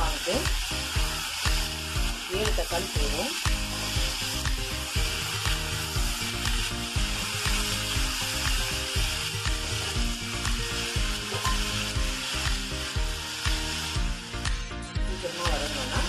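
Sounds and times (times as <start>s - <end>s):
vegetables sizzling in hot oil: 0.0s - 16.0s
spatula scraping and knocking pan: 3.5s - 16.0s.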